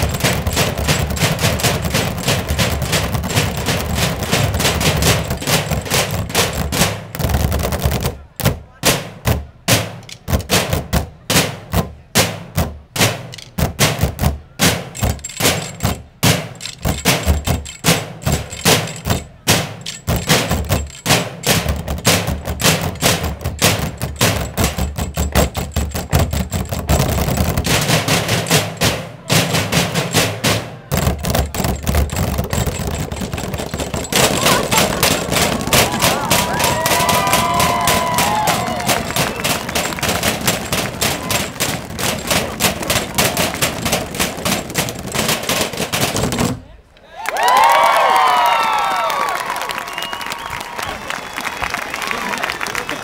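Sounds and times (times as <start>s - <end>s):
drumsticks beating trash cans: 0.0s - 46.7s.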